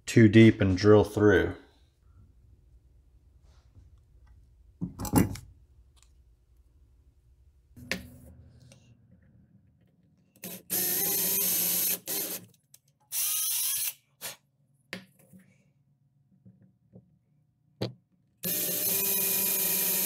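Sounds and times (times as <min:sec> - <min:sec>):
power drill boring into wood: 0:10.4 - 0:12.4, 0:13.1 - 0:14.0, 0:18.4 - 0:20.0.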